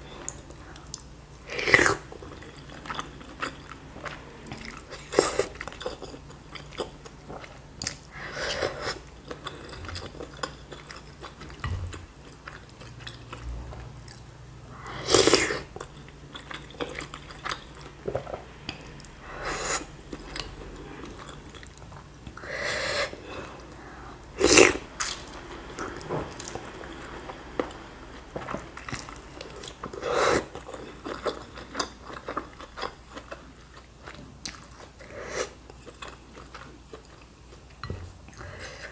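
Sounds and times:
close chewing: 0:35.6 - 0:38.5.

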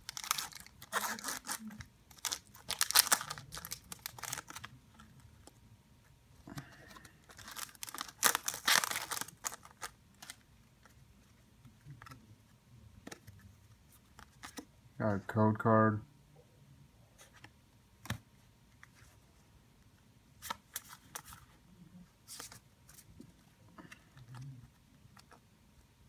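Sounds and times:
foil wrapper tearing and crinkling: 0:00.0 - 0:04.7, 0:07.3 - 0:10.4.

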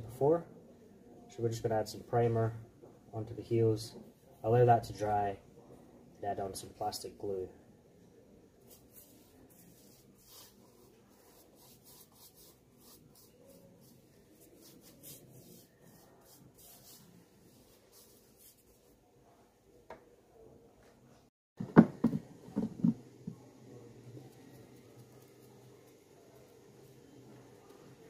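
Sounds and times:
brush scratching on rubber: 0:08.6 - 0:19.0
loud knocks and clunks: 0:21.6 - 0:23.0.

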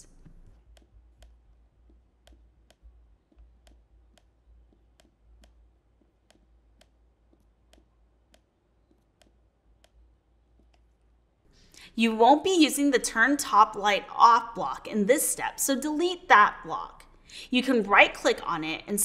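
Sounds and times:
computer mouse clicking: 0:02.2 - 0:10.0.

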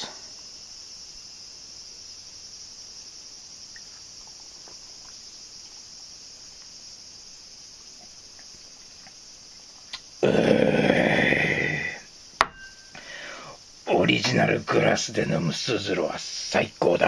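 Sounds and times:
insects chirring: 0:00.0 - 0:17.0.

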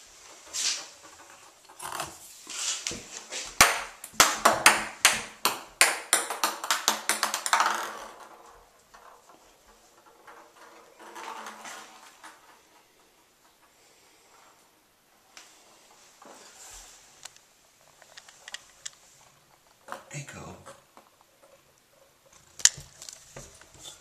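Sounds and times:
ping pong ball bouncing in bathtub: 0:03.6 - 0:08.3.

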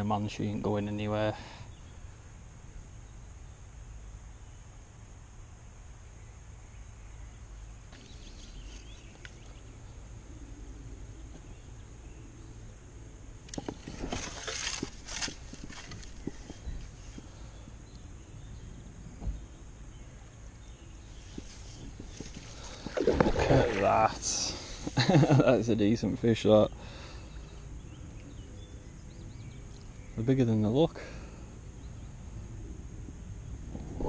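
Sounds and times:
fish splashing in water: 0:22.1 - 0:24.7.

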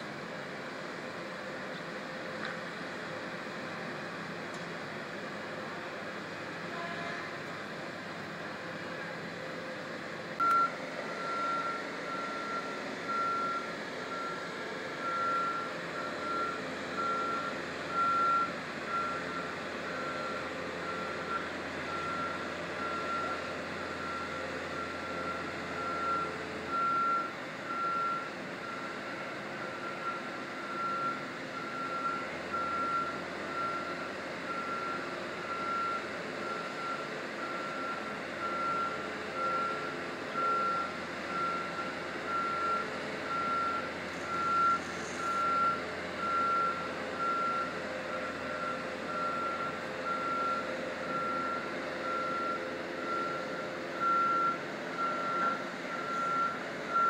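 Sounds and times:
low engine hum: 0:00.0 - 0:57.0
back-up alarm beeping: 0:10.4 - 0:28.9.

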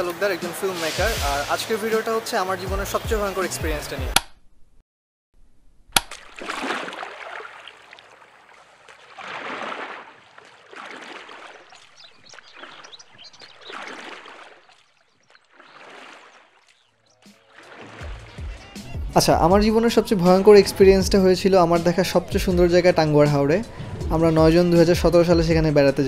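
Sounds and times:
water swishing and splashing: 0:00.0 - 0:03.5, 0:06.0 - 0:26.0
sharp click: 0:04.2 - 0:04.4, 0:05.9 - 0:06.2.

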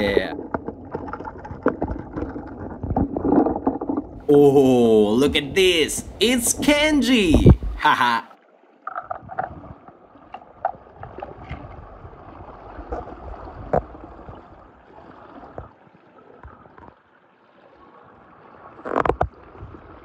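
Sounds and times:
toys knocking and splashing: 0:00.0 - 0:04.2.

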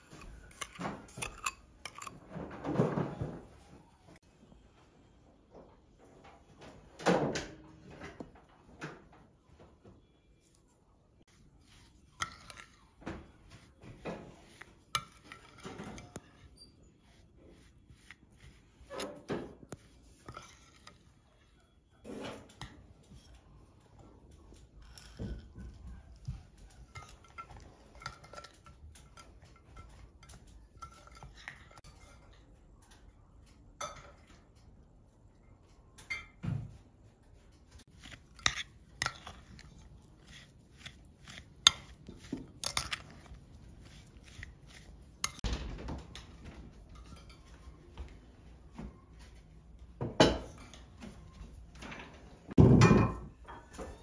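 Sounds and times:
metal spoon scraping glass bowl: 0:00.1 - 0:02.2, 0:11.4 - 0:21.3, 0:26.2 - 0:32.4, 0:37.9 - 0:45.4.

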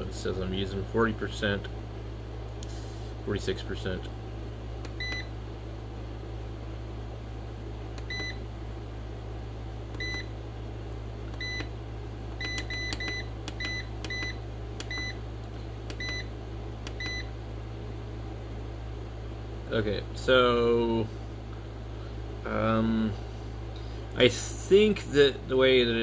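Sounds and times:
steady low hum: 0:00.0 - 0:26.0
keypad beeping: 0:04.9 - 0:05.3, 0:08.0 - 0:08.4, 0:10.0 - 0:10.3, 0:11.4 - 0:11.7, 0:12.4 - 0:15.2, 0:15.9 - 0:16.3, 0:16.9 - 0:17.3.

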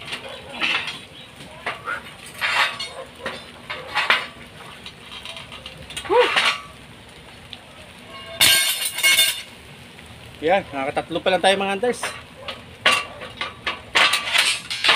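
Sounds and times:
steel bars clanking together: 0:00.0 - 0:06.8, 0:08.1 - 0:09.5, 0:12.0 - 0:14.9.

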